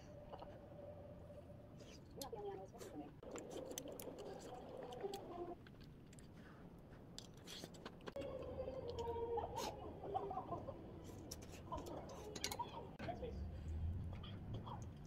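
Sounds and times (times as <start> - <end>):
chewing: 2.2 - 9.8.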